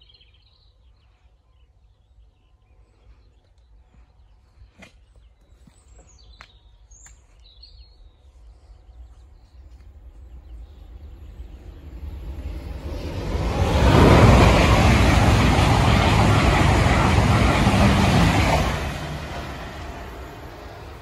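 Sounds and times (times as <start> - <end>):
electric train approaching: 10.0 - 21.0.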